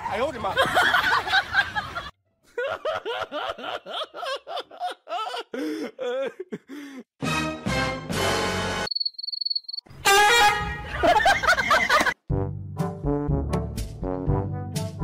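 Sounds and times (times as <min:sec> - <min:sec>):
person giggling: 0:02.5 - 0:07.1.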